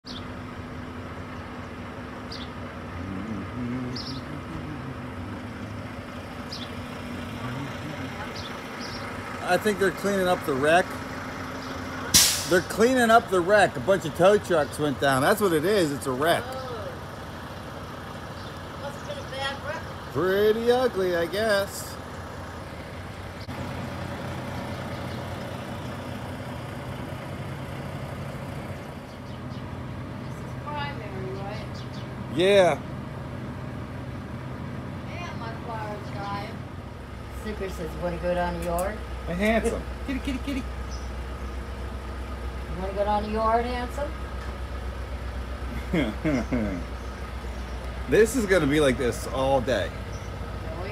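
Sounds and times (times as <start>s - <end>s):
diesel engines idling: 0.0s - 50.9s
sharp click: 12.2s - 12.5s.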